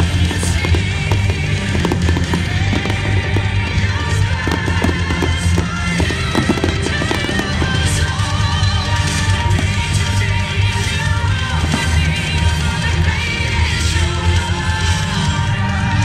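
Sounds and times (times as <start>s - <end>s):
fireworks bursting and crackling: 0.0s - 15.2s
loud music with heavy bass: 0.0s - 16.0s.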